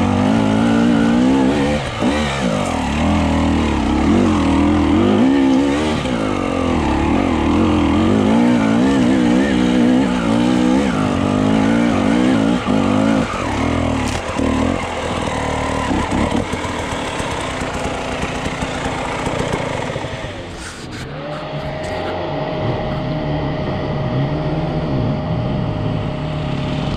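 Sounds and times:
motorcycle engine revving: 0.0 - 26.9.

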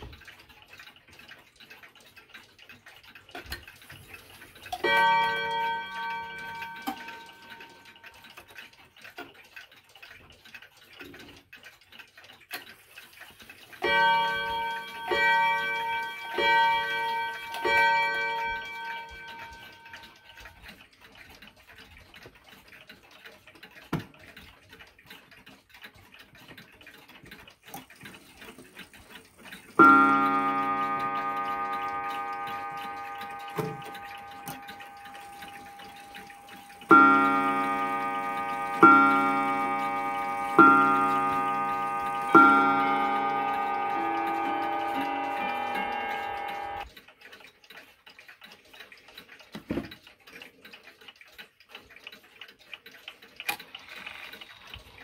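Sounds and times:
wall clock ticking: 0.0 - 55.0
mantel clock long-ringing strike: 4.1 - 8.6, 13.8 - 20.6, 29.1 - 46.9
wall clock striking: 4.7 - 8.4, 13.8 - 20.3, 29.6 - 46.8.

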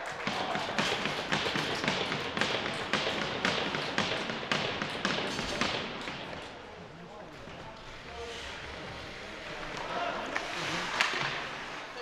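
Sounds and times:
rhythmic knocks: 0.1 - 6.4.

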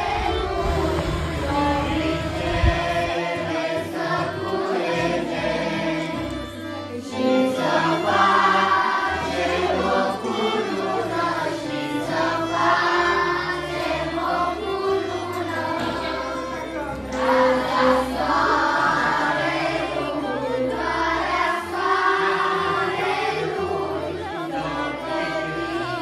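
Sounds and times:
choir singing over bass line: 0.0 - 26.0.

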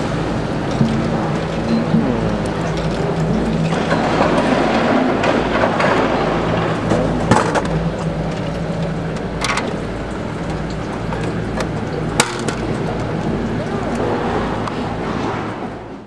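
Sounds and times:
steady low hum: 0.0 - 16.0
can dropping in vending machine: 12.2 - 12.7.

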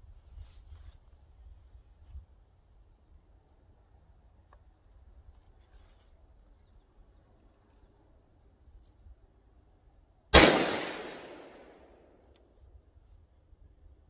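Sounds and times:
rifle shot with echo: 10.4 - 12.1.

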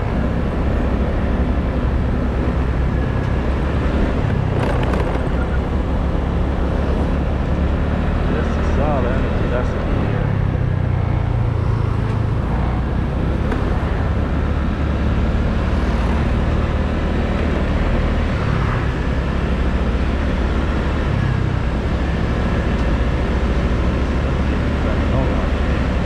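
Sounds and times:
road and wind noise: 0.0 - 26.0
scooter engine running: 4.2 - 6.4.

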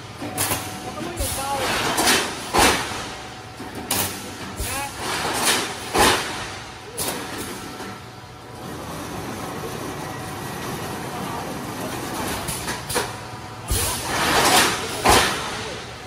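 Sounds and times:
welding machine clack: 0.0 - 8.1, 12.0 - 16.0
welding machine noise with hum: 0.0 - 16.0.

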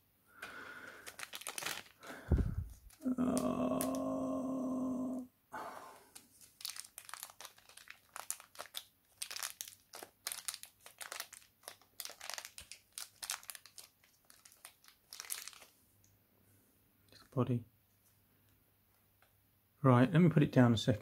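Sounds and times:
plastic wrap crinkling: 0.8 - 4.1, 6.0 - 15.8.

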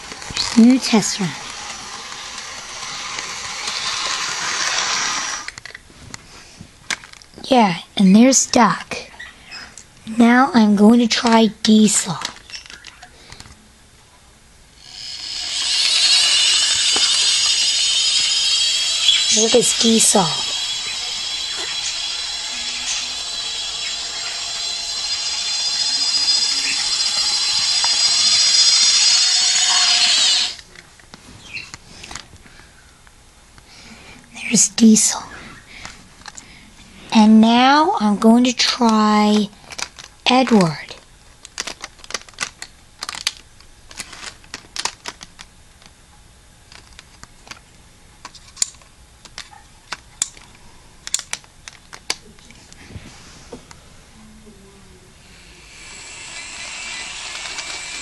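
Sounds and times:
model train motor whine: 0.0 - 5.8, 14.8 - 30.7, 55.1 - 58.0.

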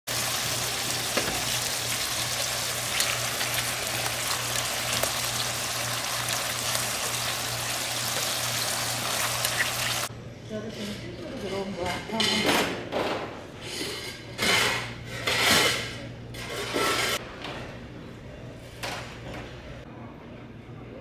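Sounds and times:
meat sizzling on a griddle: 0.1 - 10.1.

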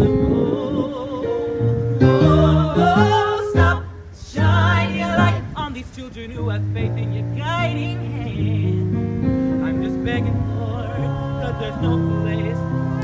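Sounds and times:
ensemble singing in harmony: 0.0 - 13.0
sustained low accompaniment: 6.5 - 13.0.

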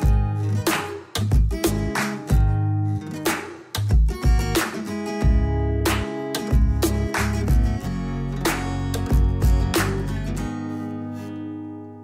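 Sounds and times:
strummed guitar music: 0.0 - 12.0
low bass notes: 5.2 - 10.5.

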